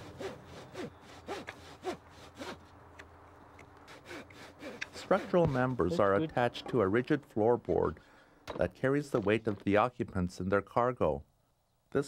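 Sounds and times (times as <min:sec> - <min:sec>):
knife scraping wood: 0:00.0 - 0:02.6, 0:03.8 - 0:06.0.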